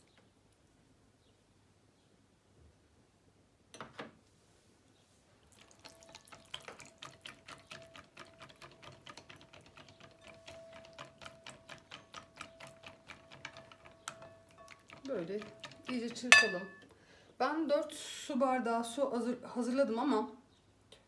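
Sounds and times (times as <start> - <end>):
wire whisk beating in glass bowl: 5.9 - 16.8.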